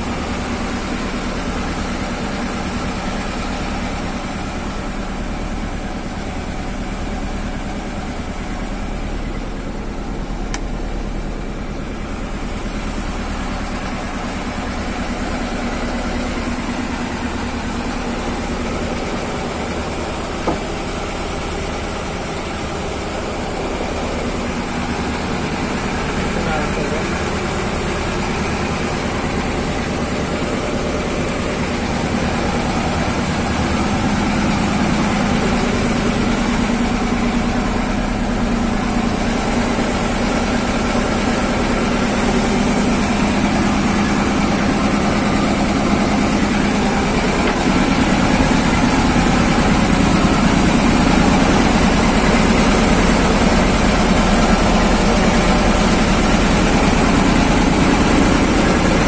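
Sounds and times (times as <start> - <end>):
boat engine droning: 0.0 - 59.0.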